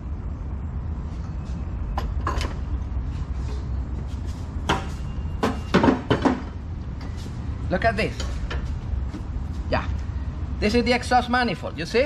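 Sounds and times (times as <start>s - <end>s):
steady low hum: 0.0s - 12.0s
metal knocks and clunks: 4.6s - 6.6s.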